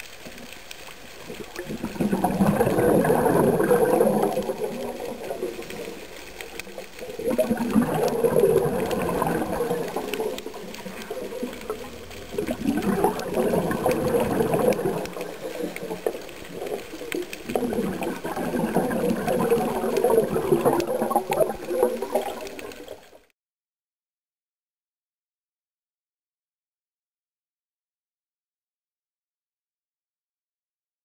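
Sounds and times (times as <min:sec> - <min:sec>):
underwater regulator bubbles: 0:00.0 - 0:23.3.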